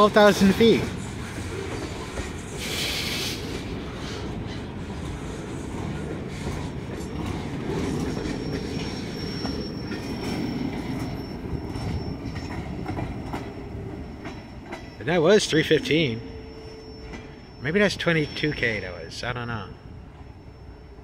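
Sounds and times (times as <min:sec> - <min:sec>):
train wheels clicking over rail joints: 0:00.1 - 0:15.0
high wheel squeal: 0:06.3 - 0:13.0, 0:14.0 - 0:21.0.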